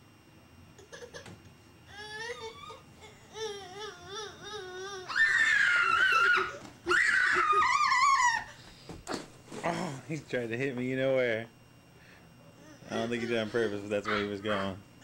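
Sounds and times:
toddler shrieking: 3.4s - 8.5s.

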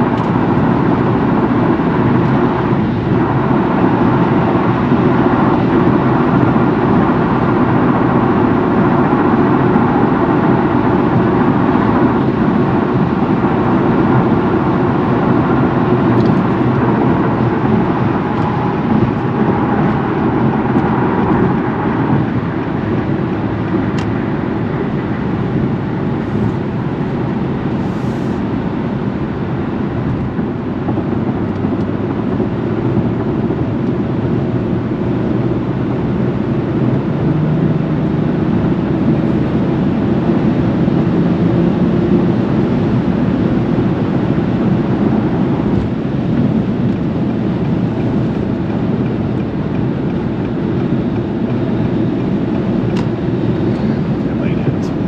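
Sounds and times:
car engine: 0.0s - 55.0s
road noise: 0.0s - 55.0s.

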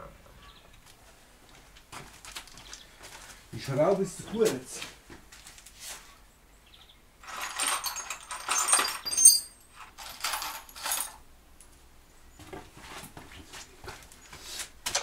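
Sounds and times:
metal hardware clattering and jingling: 7.2s - 11.2s.

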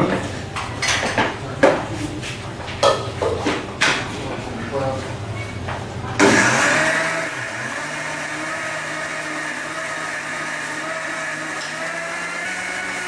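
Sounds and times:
mixer grinder motor whining: 6.1s - 13.0s.

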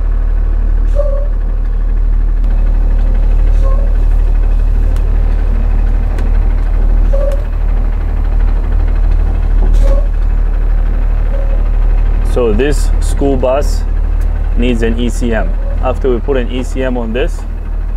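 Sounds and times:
diesel bus engine rumbling: 0.0s - 17.9s
brief squeaks: 9.7s - 10.1s.

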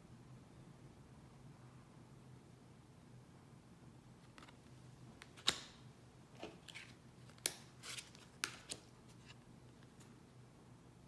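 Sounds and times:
cards snapping: 5.2s - 5.8s, 6.4s - 8.9s
cards sliding and rustling: 6.4s - 10.2s.

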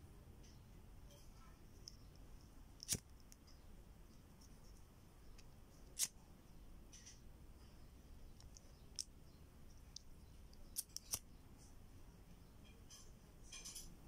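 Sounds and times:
lighter flint wheel clicks: 9.9s - 11.2s.

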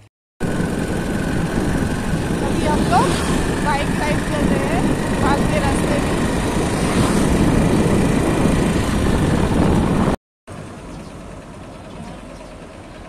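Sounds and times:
wind buffeting microphone: 0.4s - 10.2s.

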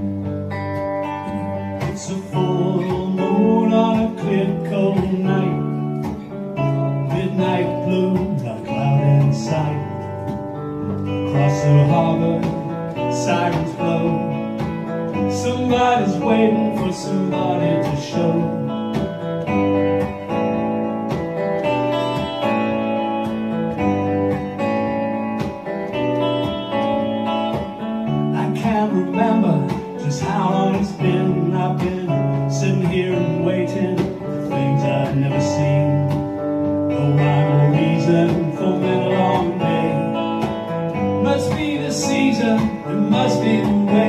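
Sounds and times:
electric guitar playing: 0.0s - 44.0s
man singing: 1.2s - 19.2s, 28.0s - 44.0s.

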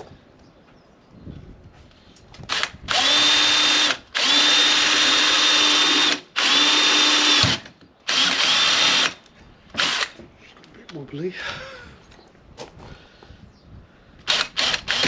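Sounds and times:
cordless drill whining: 2.4s - 10.2s, 14.2s - 15.0s.

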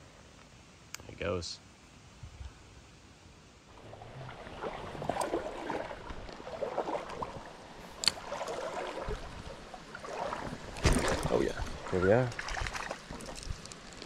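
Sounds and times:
creek water splashing: 3.7s - 14.0s.

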